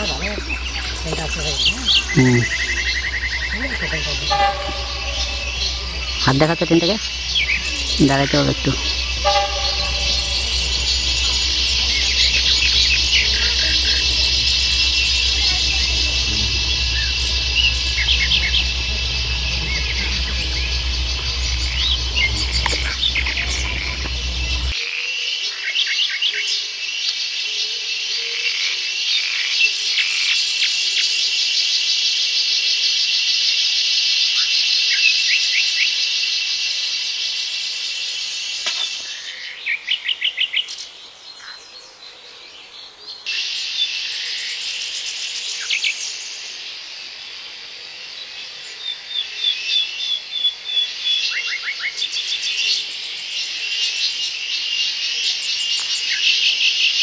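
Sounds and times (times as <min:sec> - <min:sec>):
bird chirps: 0:00.0 - 0:24.8
insects shrill drone: 0:00.0 - 0:40.6, 0:43.3 - 0:57.0.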